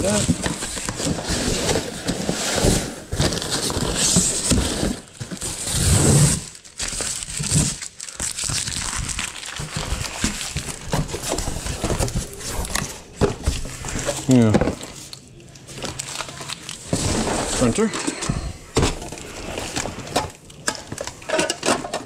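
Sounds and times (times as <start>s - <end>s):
box scraping: 0.0s - 6.5s, 9.7s - 15.0s, 16.8s - 20.4s
packing paper and plastic rustling: 0.0s - 22.0s.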